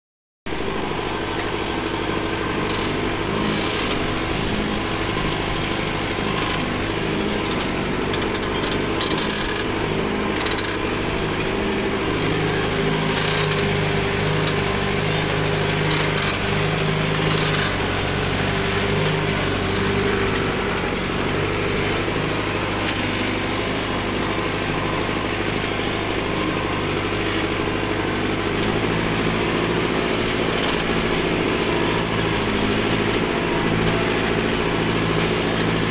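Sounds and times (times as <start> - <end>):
tractor diesel engine under load: 0.5 - 35.9.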